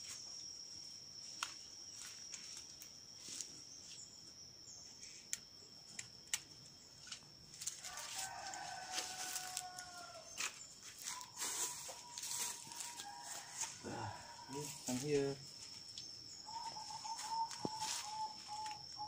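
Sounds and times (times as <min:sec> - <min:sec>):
high insect drone: 0:00.0 - 0:19.0
rooster crowing: 0:07.7 - 0:10.4, 0:11.1 - 0:15.0.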